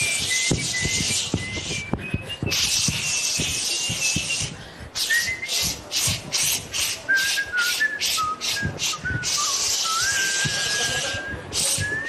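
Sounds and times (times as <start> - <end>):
person whistling a tune: 0.0 - 6.0, 7.1 - 12.0
hiss in short bursts: 2.5 - 11.8.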